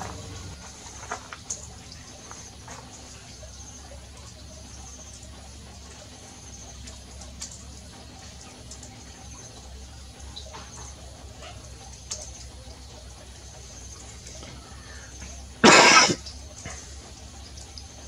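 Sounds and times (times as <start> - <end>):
small birds chirping: 1.4 - 15.6.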